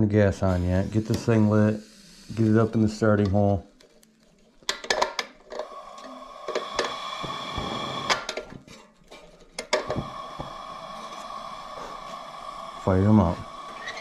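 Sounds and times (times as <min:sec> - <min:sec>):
gas hiss with faint whistle: 0:00.6 - 0:03.2, 0:05.6 - 0:08.4, 0:09.6 - 0:14.0.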